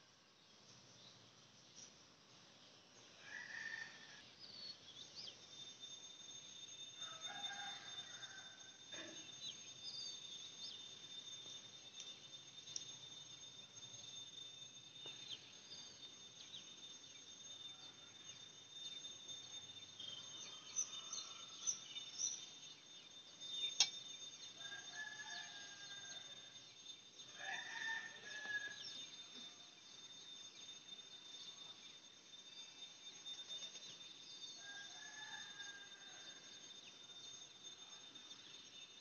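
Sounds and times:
high-pitched whine: 0.0 - 39.0
rooster crowing: 3.2 - 4.3, 7.0 - 9.2, 20.3 - 22.0, 24.6 - 26.6, 27.3 - 29.0, 34.5 - 36.6.

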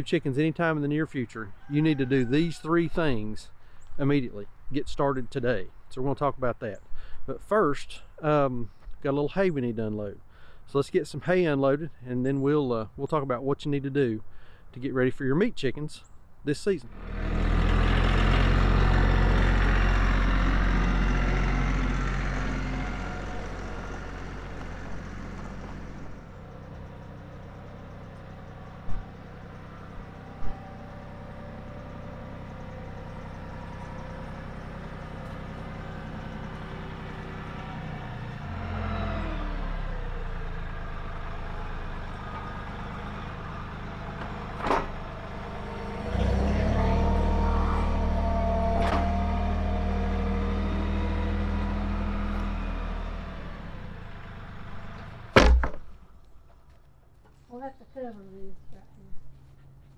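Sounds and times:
tractor engine running: 16.8 - 56.9
sharp knocks: 55.4 - 55.9.

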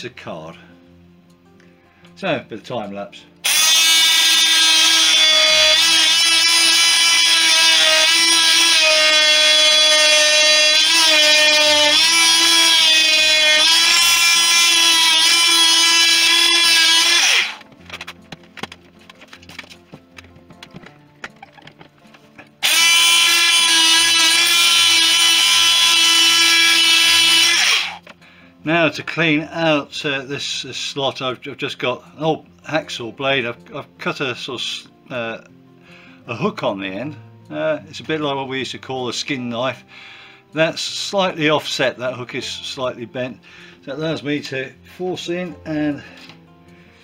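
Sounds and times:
oscillating multi-tool cutting wood: 3.4 - 18.8, 20.8 - 28.1.

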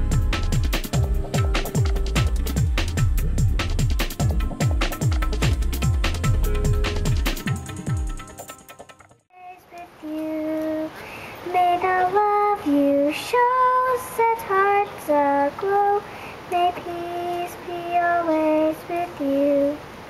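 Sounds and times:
girl singing into a microphone: 9.3 - 20.0.

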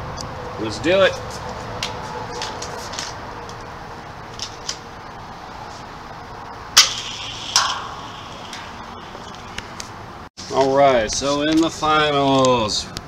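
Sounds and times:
toy launcher snapping: 6.8 - 9.4.

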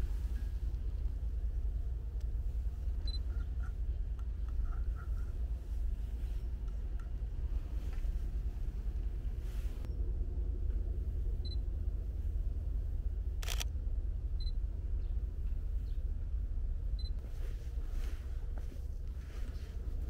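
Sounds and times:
low rumble: 0.0 - 20.0
camera focus beeps: 13.4 - 13.6
camera shutter release: 13.4 - 13.7.

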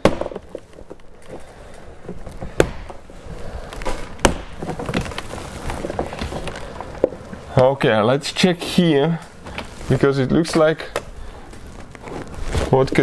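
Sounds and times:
trim panel rustling and creaking: 0.4 - 7.7.

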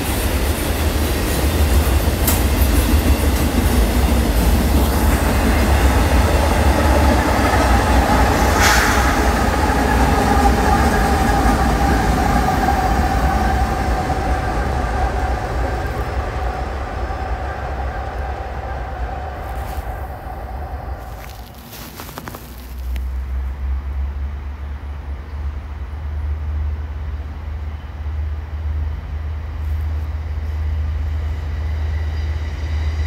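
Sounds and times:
freight train rumbling past: 0.0 - 33.0.

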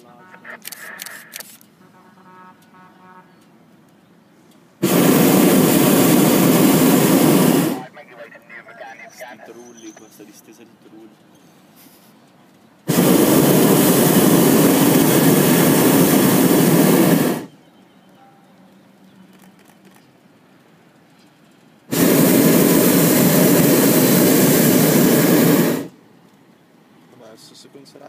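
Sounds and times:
propane burner blasts: 4.8 - 7.9, 12.8 - 17.7, 20.6 - 26.8.

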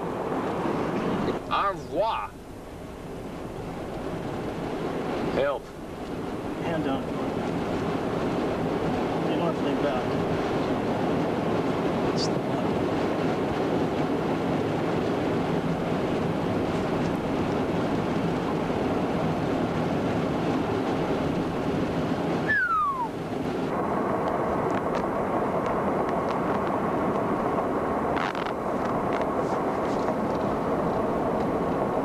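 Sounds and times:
road and wind noise: 0.0 - 32.0
short falling whistle: 22.4 - 23.1.

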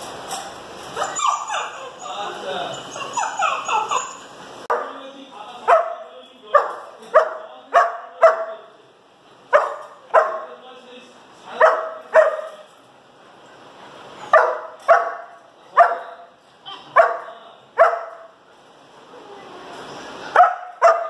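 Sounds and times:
puppy barking: 1.0 - 2.1, 2.8 - 5.0, 5.6 - 8.6, 9.5 - 10.6, 11.6 - 12.7, 14.2 - 18.4, 20.3 - 21.0.

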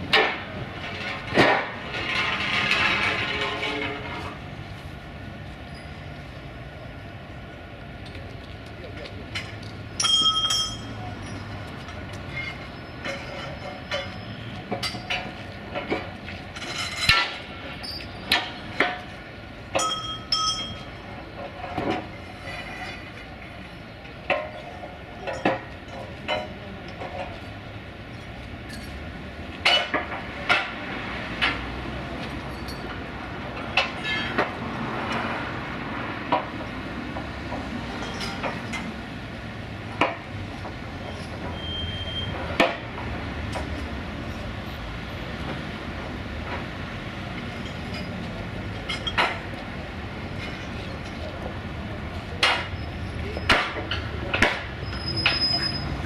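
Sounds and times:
metal clanks and knocks: 0.0 - 4.5, 9.3 - 23.3, 24.2 - 27.4, 29.6 - 35.3, 36.2 - 39.0, 47.4 - 49.6, 52.2 - 55.6
street traffic: 0.0 - 56.0.

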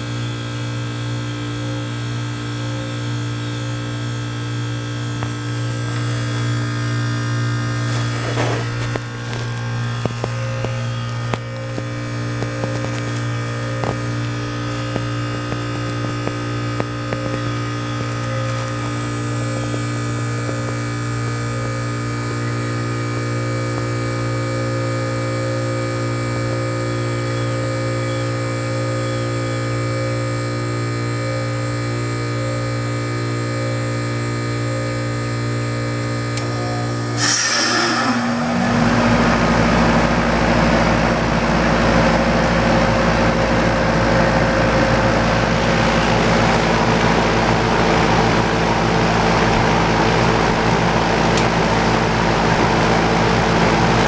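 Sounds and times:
compressor humming: 0.0 - 54.0
fan air rushing: 36.3 - 54.0
loud refrigerant whoosh: 36.9 - 41.6.

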